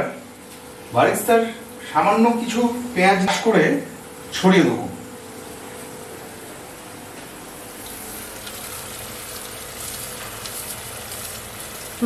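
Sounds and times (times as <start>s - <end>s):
sauce sizzling in a pan: 7.7s - 12.0s.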